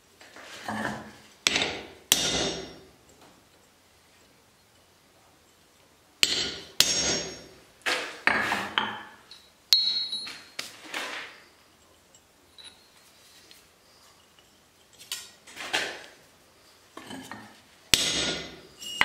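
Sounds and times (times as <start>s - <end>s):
hammer striking metal on anvil: 1.5s - 2.8s, 6.2s - 7.6s, 9.7s - 10.5s, 17.9s - 19.0s.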